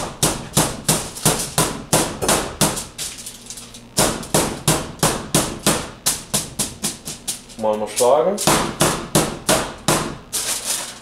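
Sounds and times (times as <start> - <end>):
meat pounded on cutting board: 0.0 - 3.0, 4.0 - 7.2, 8.4 - 10.3.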